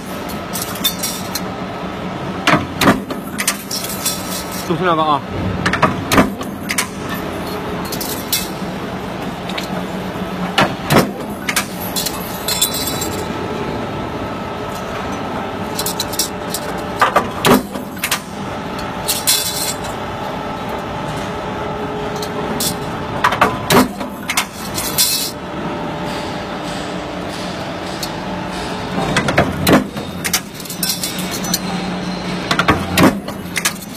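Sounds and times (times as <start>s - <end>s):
metallic clanks and clinks: 0.2s - 1.5s, 3.2s - 4.8s, 6.4s - 8.6s, 11.1s - 13.3s, 14.7s - 20.0s, 22.1s - 25.4s, 26.0s - 33.9s.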